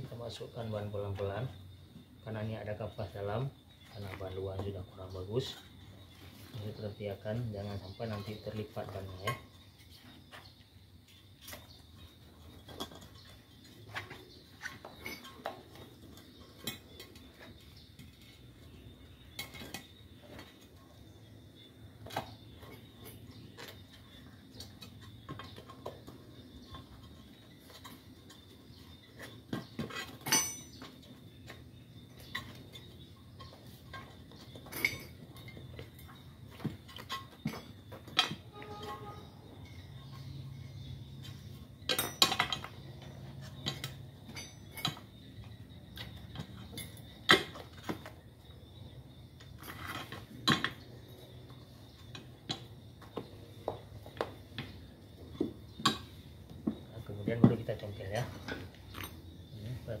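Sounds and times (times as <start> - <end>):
tyre clinking and knocking on rim: 22.0 - 39.9.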